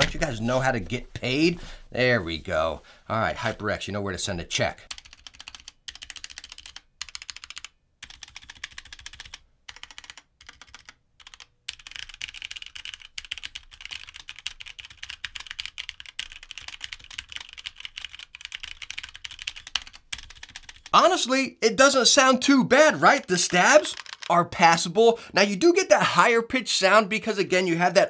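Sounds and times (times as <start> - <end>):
mechanical keyboard typing: 4.9 - 20.9, 23.4 - 24.4.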